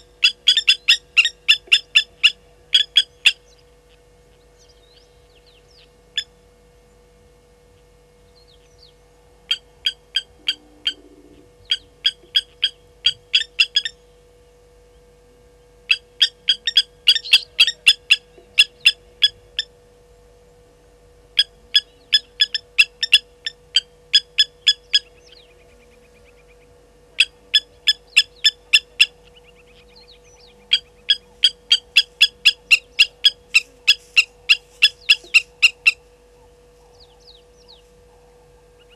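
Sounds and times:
bird metallic alarm calls: 0:00.0 - 0:03.7, 0:09.5 - 0:14.1, 0:15.9 - 0:19.7, 0:21.4 - 0:26.6, 0:27.2 - 0:36.1.

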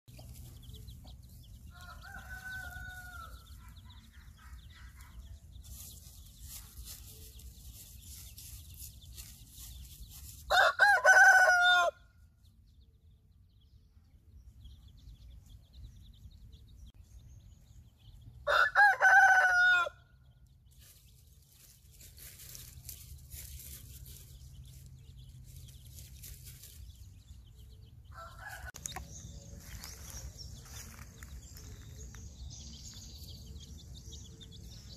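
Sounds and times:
rooster crowing: 0:01.7 - 0:03.5, 0:10.5 - 0:12.1, 0:18.4 - 0:20.1, 0:28.1 - 0:28.8.

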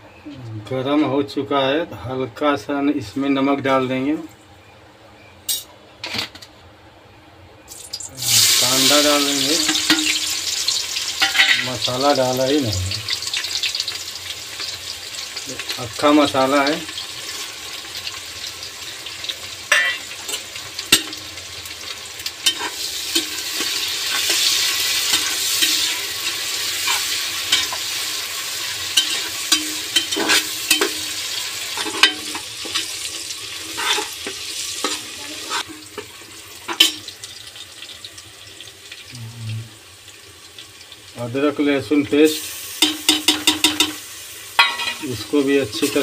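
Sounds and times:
onions sizzling in hot oil: 0:07.7 - 0:46.0
ladle scraping against pot: 0:29.0 - 0:31.0, 0:33.7 - 0:35.8.

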